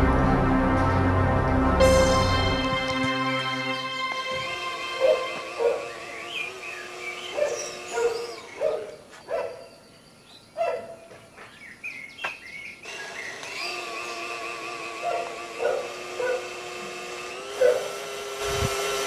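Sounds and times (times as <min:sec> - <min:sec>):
steady background tone: 0:00.0 - 0:07.8
birds chirping: 0:03.7 - 0:15.9
dog barking: 0:05.0 - 0:06.0, 0:07.3 - 0:09.7, 0:10.6 - 0:11.1, 0:15.0 - 0:16.5, 0:17.6 - 0:17.9.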